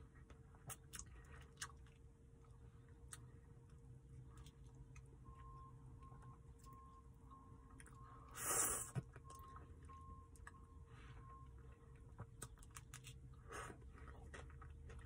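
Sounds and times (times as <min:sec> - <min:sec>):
licking and chewing: 0:00.2 - 0:05.5, 0:11.8 - 0:15.0.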